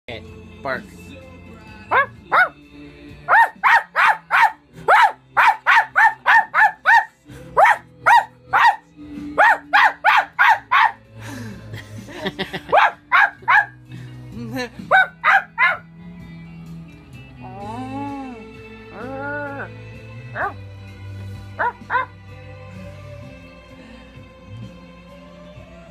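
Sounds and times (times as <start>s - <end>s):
music playing: 0.1s - 25.9s.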